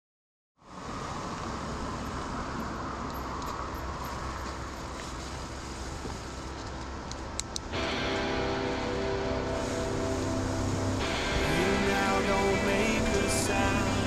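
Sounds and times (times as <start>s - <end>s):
low rumble: 7.7s - 14.0s.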